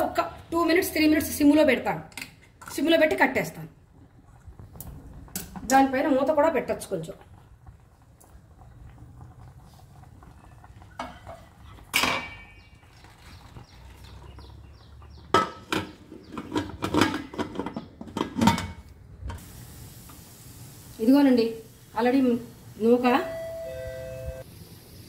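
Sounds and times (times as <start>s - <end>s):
metal cookware clanking: 10.9s - 12.8s, 15.3s - 19.4s.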